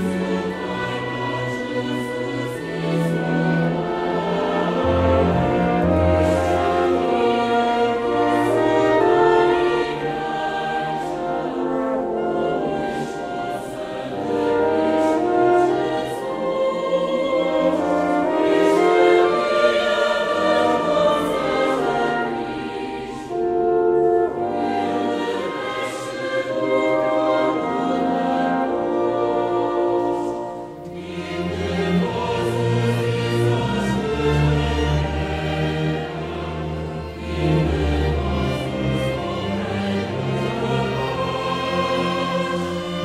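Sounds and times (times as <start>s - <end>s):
choir singing: 0.0s - 43.0s
string orchestra: 0.0s - 43.0s.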